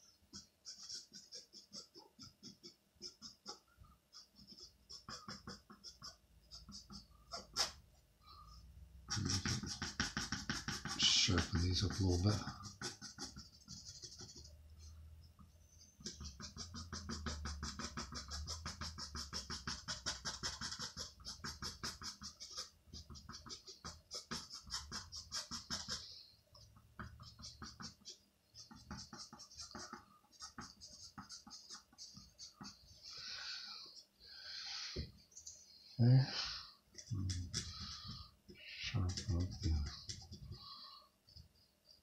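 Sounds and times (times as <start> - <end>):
pencil scratching on linen: 0.0 - 7.8, 9.1 - 14.9, 16.0 - 26.2, 27.0 - 33.0, 37.2 - 38.4, 39.0 - 40.8.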